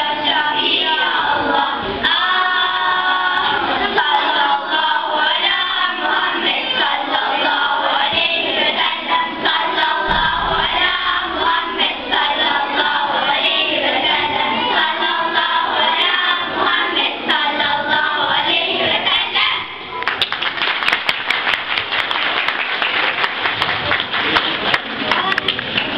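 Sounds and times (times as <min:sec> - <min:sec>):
girls choir singing: 0:00.0 - 0:20.0
audience applause: 0:20.0 - 0:25.9.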